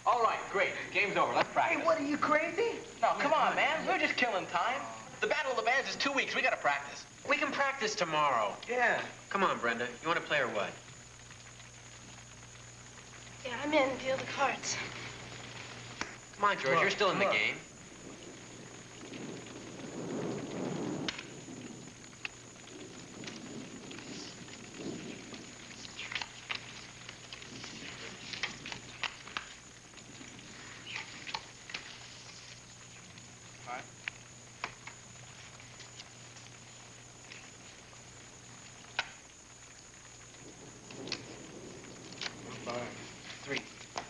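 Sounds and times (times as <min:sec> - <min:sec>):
faint steady hiss: 0:00.0 - 0:44.0
low hum: 0:00.0 - 0:44.0.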